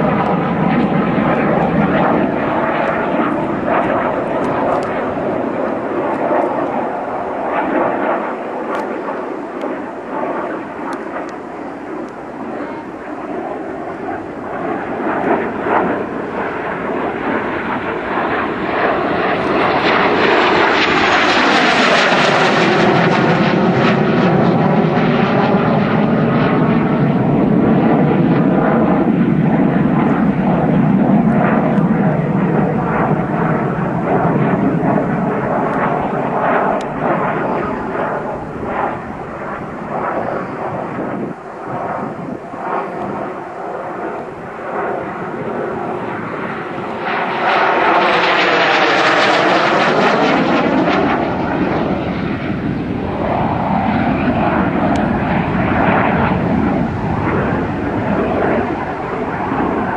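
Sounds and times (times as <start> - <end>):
jet passing overhead: 0.0 - 59.9.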